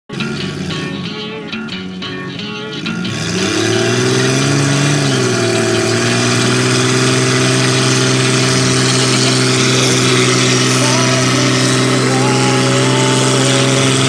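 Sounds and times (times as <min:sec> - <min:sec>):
car engine at high revs: 0:00.1 - 0:14.0
tyre spinning in a burnout: 0:02.8 - 0:14.0.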